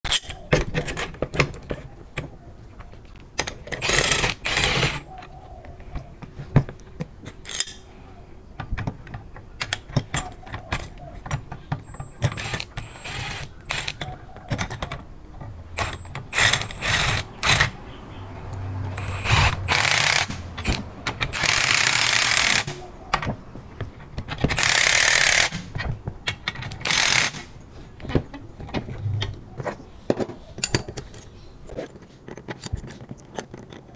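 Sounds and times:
metal clicks and clanks: 0.1s - 2.3s, 6.7s - 7.8s, 8.6s - 17.8s, 18.5s - 33.9s
power tool bursts: 3.8s - 5.0s, 15.8s - 17.7s, 19.0s - 22.8s, 24.6s - 25.7s, 26.8s - 27.5s.

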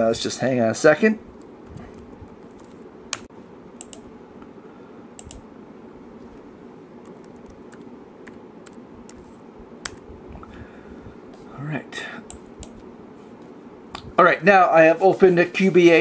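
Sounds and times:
steady low hum: 0.0s - 16.0s
laptop keyboard typing: 5.2s - 5.4s, 7.0s - 9.3s.

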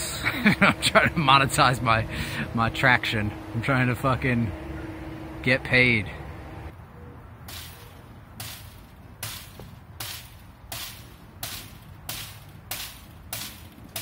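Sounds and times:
sledgehammer striking rebar: 7.5s - 14.0s.

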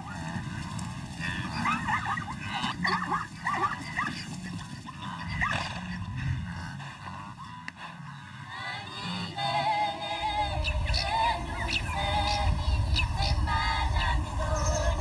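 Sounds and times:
low steady rumble: 10.2s - 15.0s.

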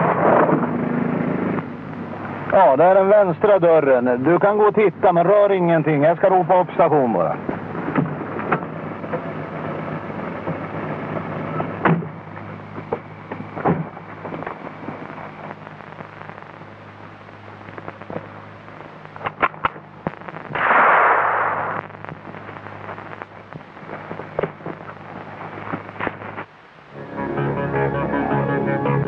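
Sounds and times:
low steady hum: 0.0s - 29.0s
loud rushing noise: 20.4s - 22.0s.

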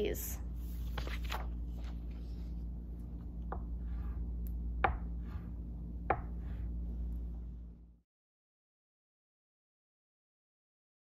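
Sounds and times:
steady low hum: 0.0s - 8.0s.

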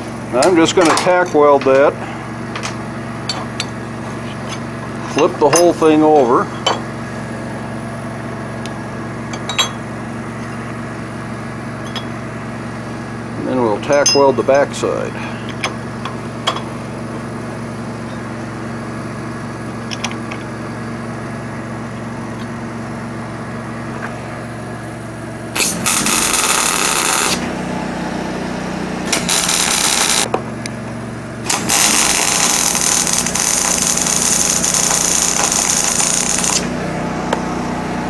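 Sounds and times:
welder arcing: 25.5s - 27.5s, 29.0s - 30.3s, 31.4s - 36.8s.

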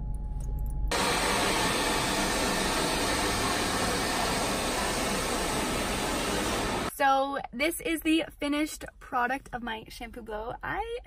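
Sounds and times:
hair dryer blowing: 0.9s - 6.9s.

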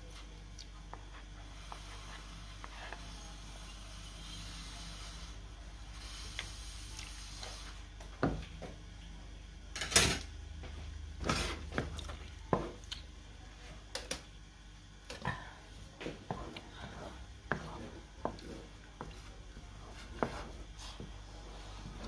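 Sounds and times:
wooden spatula scraping a pan: 16.1s - 22.0s.

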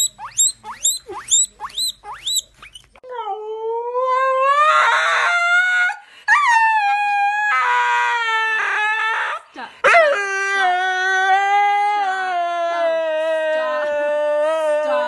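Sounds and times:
guinea pig squealing: 0.0s - 2.9s
dog howling: 3.2s - 15.0s.

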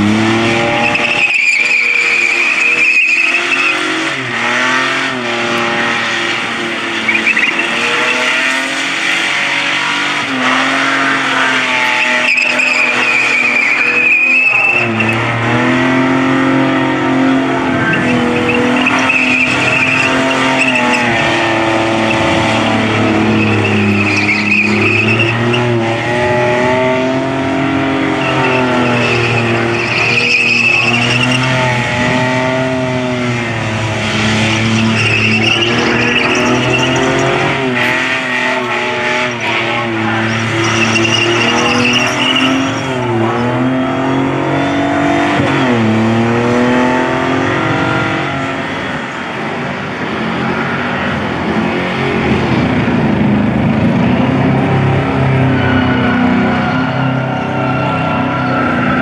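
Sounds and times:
car engine revving high: 0.0s - 59.0s
tyres squealing: 0.4s - 16.7s, 17.4s - 45.9s.

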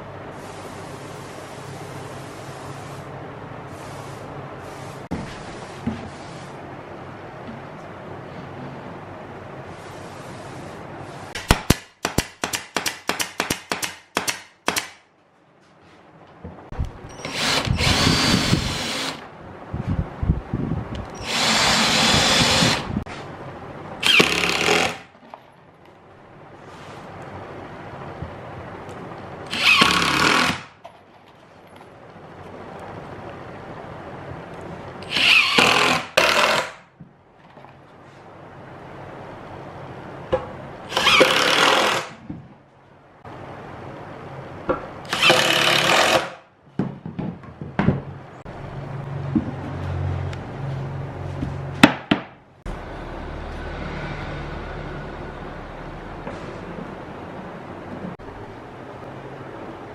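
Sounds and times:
cordless drill boring into wood: 17.2s - 19.2s, 21.2s - 22.9s, 29.5s - 30.6s, 35.0s - 36.7s, 40.9s - 42.1s, 45.1s - 46.3s
wooden knocks and clatter: 46.8s - 48.2s, 49.3s - 49.8s.

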